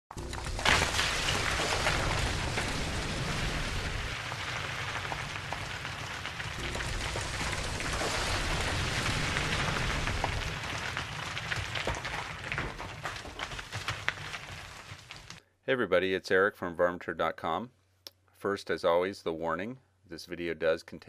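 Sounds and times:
low rumble: 0.1 - 13.2
crackling stone hiss: 0.1 - 15.4.

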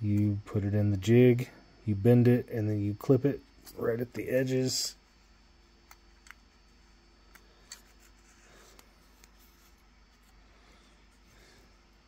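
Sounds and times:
light clicks of plastic parts: 5.8 - 6.5.

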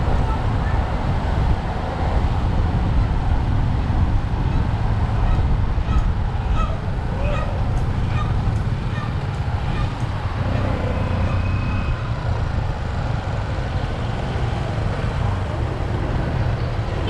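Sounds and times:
wind noise on microphone: 0.0 - 17.0
motorcycle engine rumbling: 4.4 - 17.0.

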